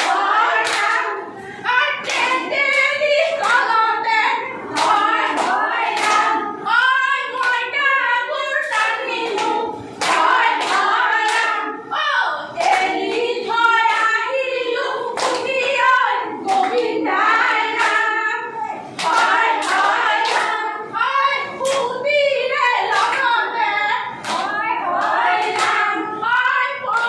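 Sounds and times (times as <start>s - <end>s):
hands clapping: 0.0s - 1.0s, 2.0s - 3.7s, 4.7s - 6.4s, 8.7s - 11.5s, 12.6s - 13.3s, 15.2s - 15.7s, 16.4s - 16.9s, 17.7s - 18.1s, 19.0s - 20.6s, 21.6s - 21.9s, 22.9s - 23.3s, 24.2s - 27.0s
women singing together: 0.0s - 27.0s.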